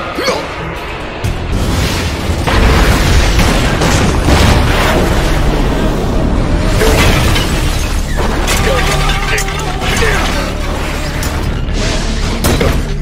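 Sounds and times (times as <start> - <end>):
heavy continuous rumble: 0.0 - 13.0
booming crashes: 1.3 - 9.2.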